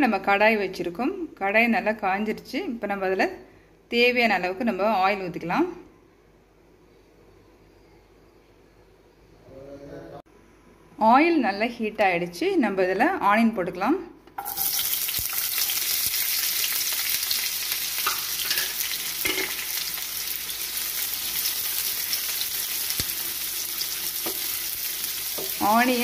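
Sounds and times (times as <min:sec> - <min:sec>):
onions sizzling in hot oil: 0:14.4 - 0:26.0.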